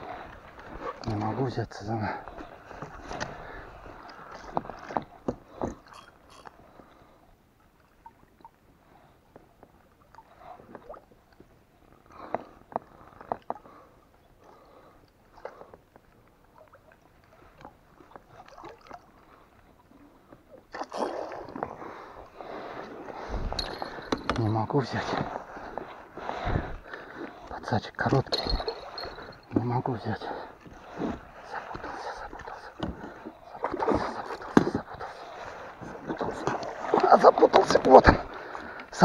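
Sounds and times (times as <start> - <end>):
water sloshing against boat: 0.0 - 39.0
water splashing: 14.6 - 39.0.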